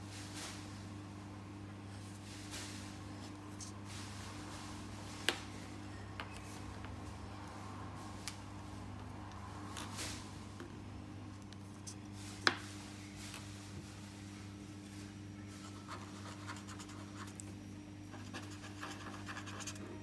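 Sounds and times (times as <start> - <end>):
steady low hum: 0.0 - 20.0
marker scratching on paper: 18.1 - 19.8.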